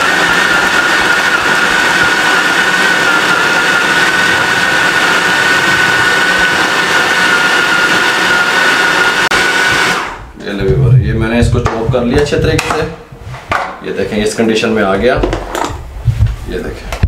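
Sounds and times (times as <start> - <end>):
food processor motor whining: 0.0 - 10.3.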